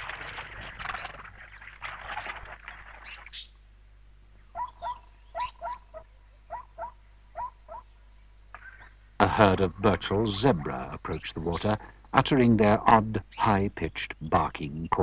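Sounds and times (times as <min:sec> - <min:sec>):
herd jostling: 0:00.0 - 0:03.3.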